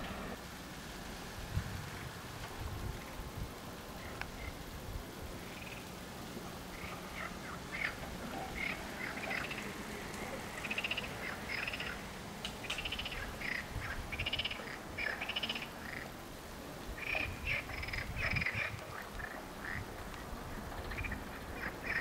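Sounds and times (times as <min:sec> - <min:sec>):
frogs croaking: 0:03.9 - 0:04.7, 0:05.4 - 0:22.0.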